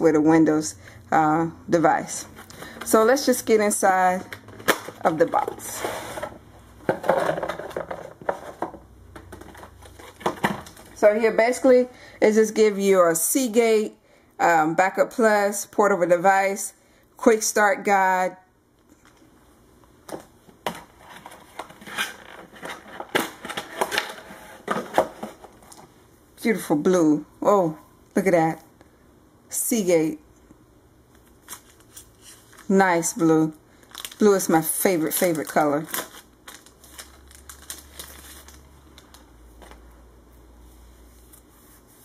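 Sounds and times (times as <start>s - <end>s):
plastic packaging crinkling: 31.2s - 39.9s.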